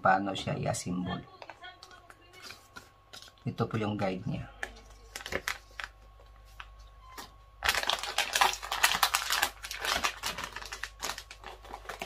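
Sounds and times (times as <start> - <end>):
packaging rustling and crackling: 4.7 - 12.0.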